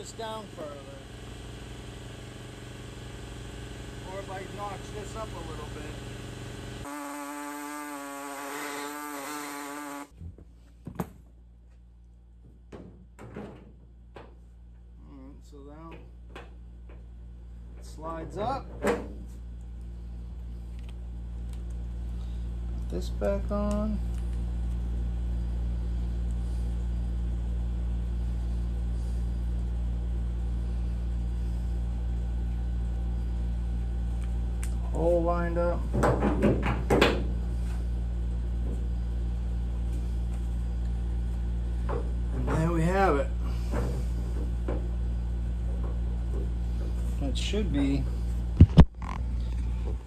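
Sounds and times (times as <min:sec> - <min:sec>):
die grinder whining: 0:00.0 - 0:10.1
low machine hum: 0:00.0 - 0:50.0.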